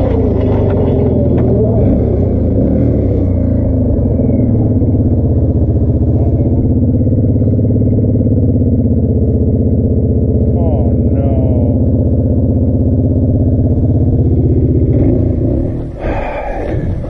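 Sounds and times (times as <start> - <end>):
atv engine running: 0.0 - 17.0.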